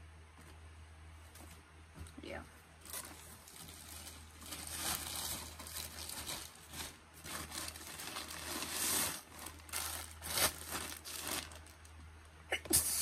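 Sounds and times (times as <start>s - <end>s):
plastic bag crinkling: 2.8s - 12.1s.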